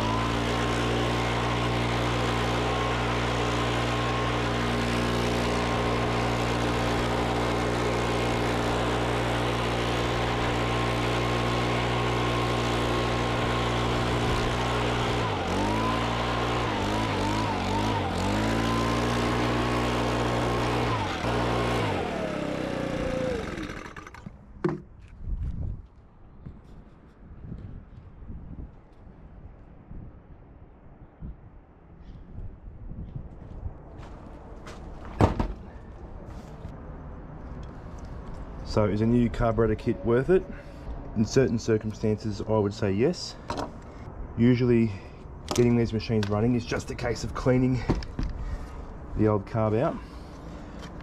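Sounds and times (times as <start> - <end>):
small engine running at high speed: 0.0 - 24.4.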